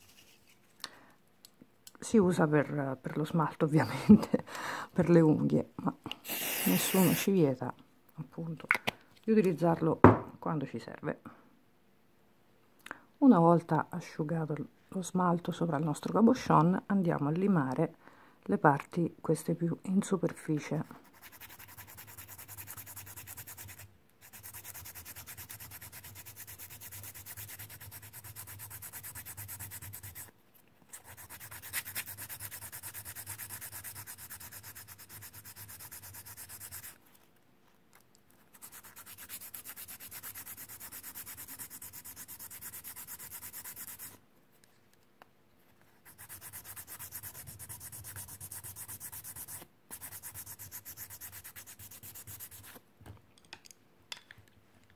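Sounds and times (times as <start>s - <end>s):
file rasping on resin: 21.1s - 30.3s, 31.0s - 37.0s, 38.6s - 44.2s, 46.0s - 52.8s.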